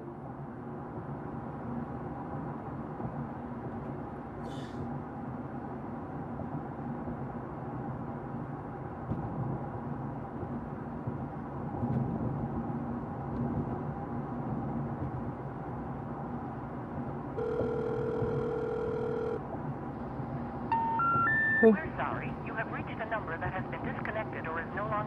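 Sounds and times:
phone call tone beep: 17.4s - 19.4s, 20.7s - 21.8s.

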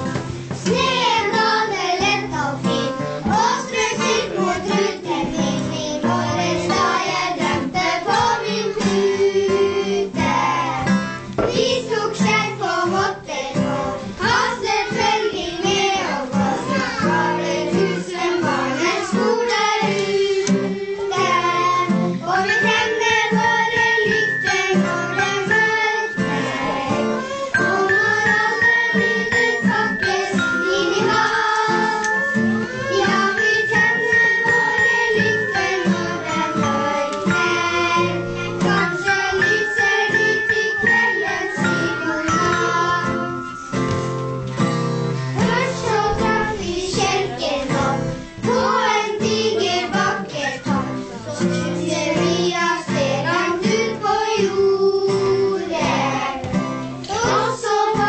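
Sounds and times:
acoustic guitar: 0.0s - 58.0s
children singing: 0.4s - 58.0s
high held tones: 22.3s - 51.0s.

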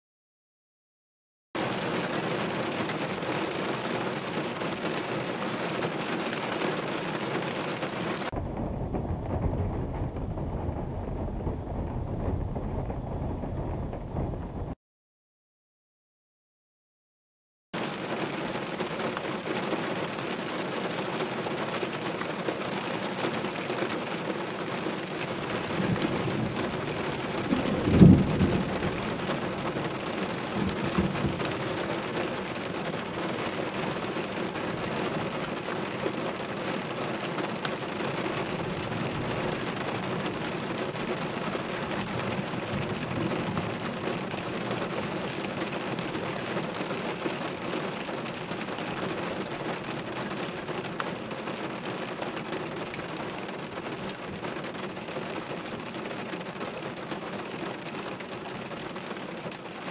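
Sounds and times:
thunder rumble: 6.8s - 14.8s, 24.7s - 55.0s
loud thunderclap: 7.3s - 14.8s, 25.0s - 50.8s
rain hiss: 17.8s - 59.9s.

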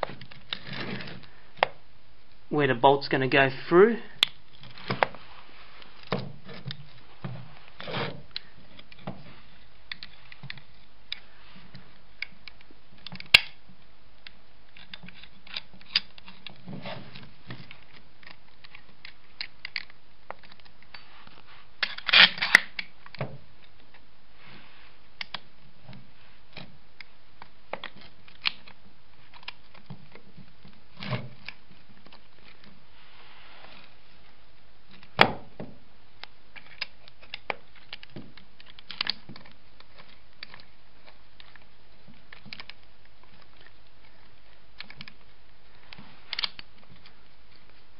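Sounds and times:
metal parts clicking and knocking: 9.9s - 11.2s, 14.7s - 16.7s, 17.5s - 21.0s, 36.5s - 41.6s, 42.3s - 44.2s.

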